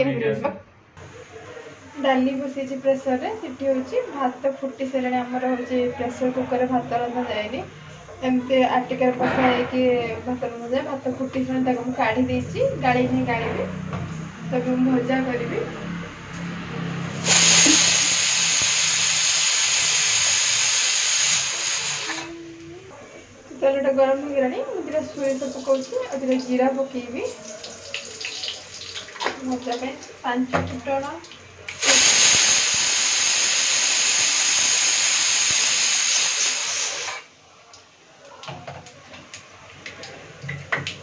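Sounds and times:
pressure cooker whistle and hiss: 0:17.1 - 0:22.4, 0:31.7 - 0:37.3.

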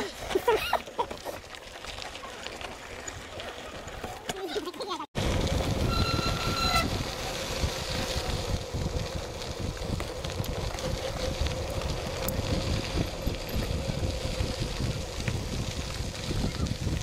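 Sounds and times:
bike rattling: 0:00.0 - 0:17.0
bike tyres rumbling on gravel: 0:00.0 - 0:17.0
wind buffeting microphone: 0:05.2 - 0:17.0.

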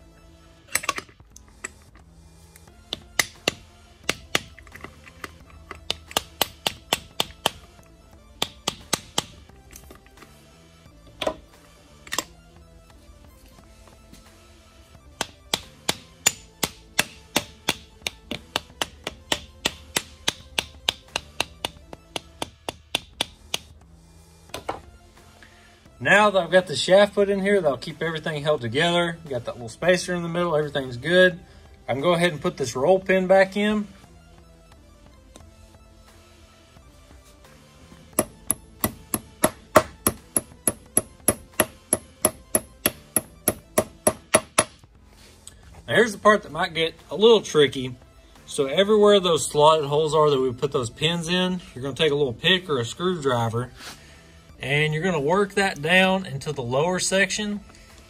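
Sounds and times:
background music: 0:00.0 - 0:58.0
mallet tapping metal shaft: 0:02.9 - 0:04.5, 0:05.8 - 0:07.6, 0:08.4 - 0:09.4, 0:15.2 - 0:23.7, 0:38.2 - 0:44.8.

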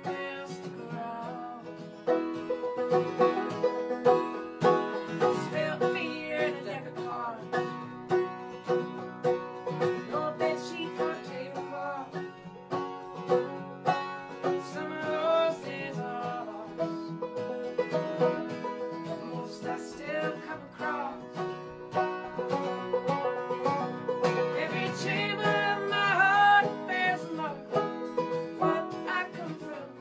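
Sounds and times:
woman singing: 0:00.0 - 0:01.8, 0:05.2 - 0:07.5, 0:10.0 - 0:12.2, 0:14.5 - 0:17.1, 0:19.0 - 0:21.4, 0:24.5 - 0:27.8, 0:28.6 - 0:30.0
banjo and acoustic guitar picking: 0:00.0 - 0:30.0.

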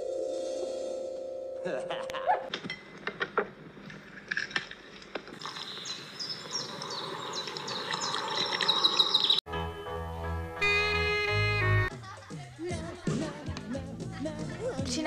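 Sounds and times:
liquid pouring onto soil: 0:05.4 - 0:09.4.

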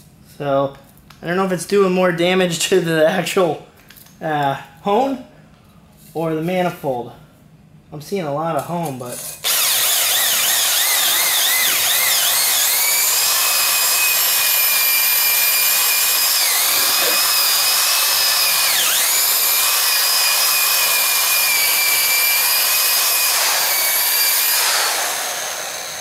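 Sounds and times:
electric drill motor whining: 0:09.4 - 0:26.0.

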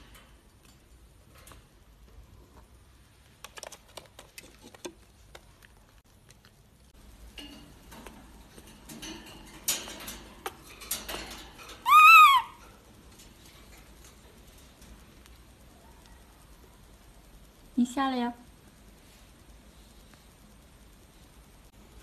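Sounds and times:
wire cage rattling: 0:07.0 - 0:15.7
monkey coo call: 0:11.8 - 0:12.6.

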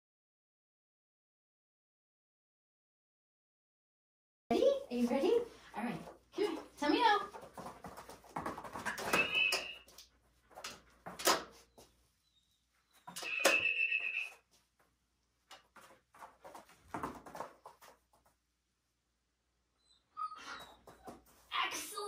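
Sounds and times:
dog whining: 0:19.8 - 0:21.3.

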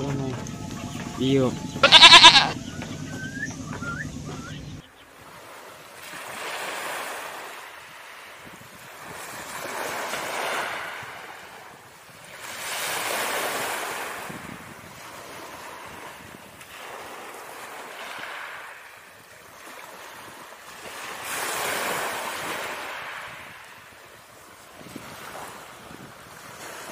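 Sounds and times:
ocean waves breaking: 0:00.0 - 0:26.9.

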